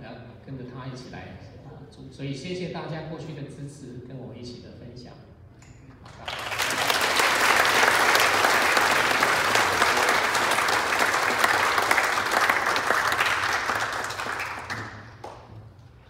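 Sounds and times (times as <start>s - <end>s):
congregation applauding: 6.0s - 15.6s.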